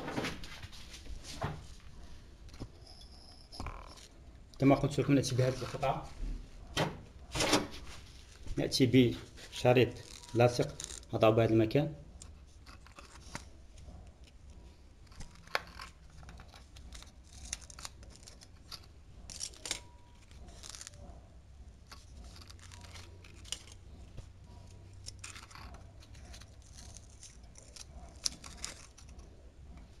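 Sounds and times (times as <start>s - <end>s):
adhesive tape peeling and tearing: 10.0s - 11.2s, 15.0s - 21.1s, 21.9s - 23.9s, 24.9s - 29.3s.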